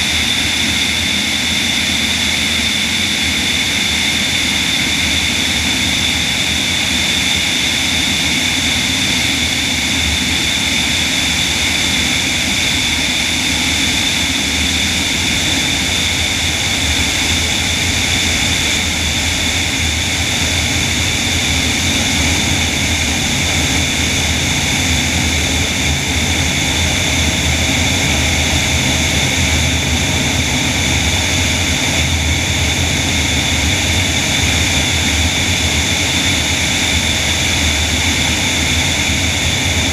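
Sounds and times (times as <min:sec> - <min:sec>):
constant high whine: 0:00.0 - 0:39.9
propeller and airflow rush: 0:00.0 - 0:39.9.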